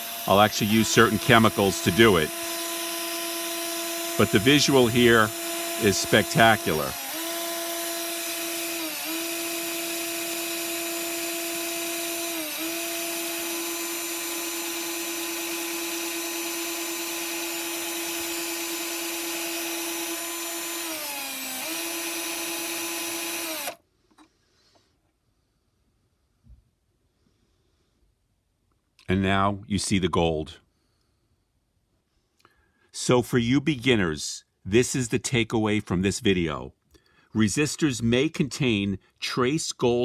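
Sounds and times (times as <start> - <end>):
cordless drill motor spinning: 0.0 - 23.8.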